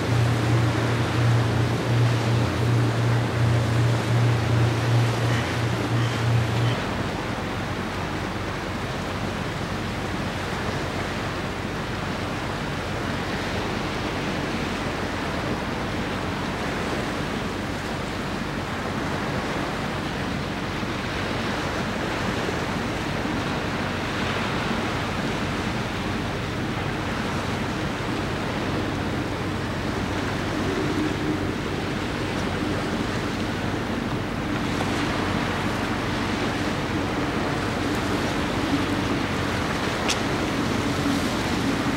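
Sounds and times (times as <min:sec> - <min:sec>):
wind on microphone: 0:00.0 - 0:08.4, 0:21.2 - 0:41.9
sea waves washing: 0:00.0 - 0:41.9.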